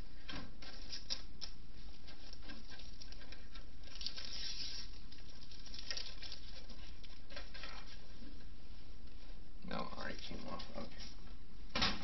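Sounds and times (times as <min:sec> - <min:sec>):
low hum and hiss: 0:00.0 - 0:12.0
computer case rustling and scraping: 0:00.5 - 0:08.4.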